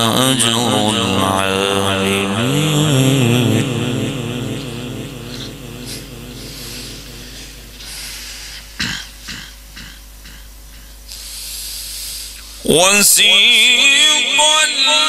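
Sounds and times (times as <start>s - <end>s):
low electrical hum: 0.0s - 12.8s
man coughing: 5.2s - 11.0s.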